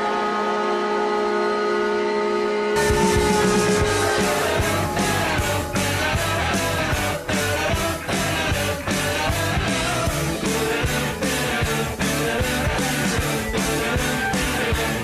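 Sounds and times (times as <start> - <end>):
goal horn: 0.0 - 8.8
rock song with singer: 2.8 - 15.0
steady drum beat: 2.8 - 15.0.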